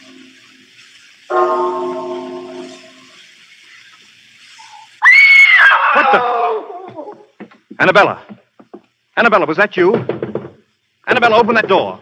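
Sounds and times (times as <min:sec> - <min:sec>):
clock bell chime: 0:01.3 - 0:03.0
woman screaming: 0:05.0 - 0:06.9.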